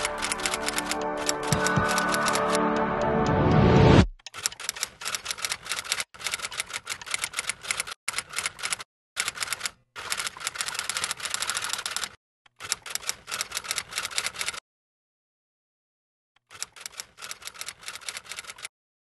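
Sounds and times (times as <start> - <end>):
typewriter key clicks: 0.0 - 2.6.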